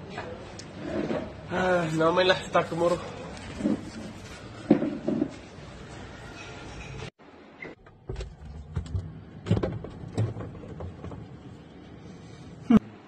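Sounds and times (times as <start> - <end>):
steady background noise: 0.0 - 13.0
knocks and thuds from shelves: 8.0 - 11.4.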